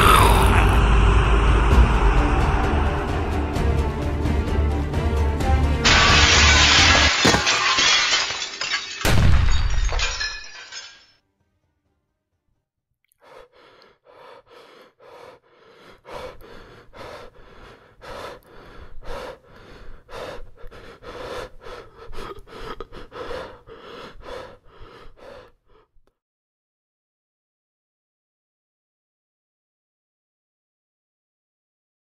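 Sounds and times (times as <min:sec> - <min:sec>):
man panting heavily: 0:00.0 - 0:04.8, 0:13.2 - 0:26.0.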